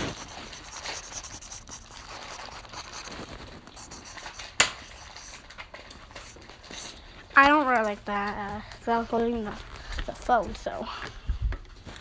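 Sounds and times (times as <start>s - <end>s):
pencil scribbling on paper: 0.0s - 5.4s.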